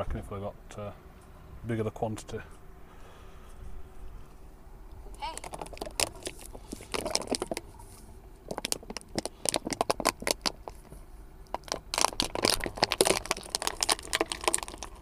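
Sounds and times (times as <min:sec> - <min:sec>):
plastic bottle crackling: 0:05.1 - 0:07.8, 0:08.4 - 0:15.0.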